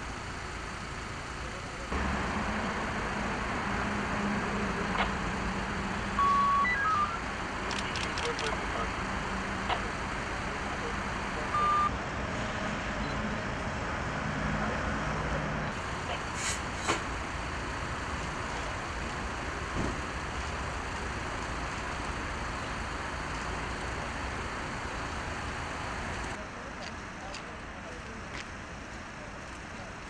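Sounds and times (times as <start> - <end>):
low engine hum: 0.0 - 30.0
road traffic noise: 0.0 - 30.0
short high beep: 6.2 - 7.2, 11.6 - 11.9
sharp clicks: 7.6 - 8.7.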